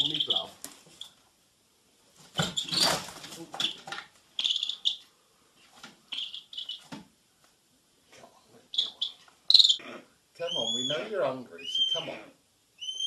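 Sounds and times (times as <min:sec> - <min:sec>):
young bird of prey chirping: 0:00.0 - 0:00.5, 0:04.4 - 0:05.0, 0:06.1 - 0:06.8, 0:08.7 - 0:09.8, 0:10.5 - 0:12.1, 0:12.8 - 0:13.0.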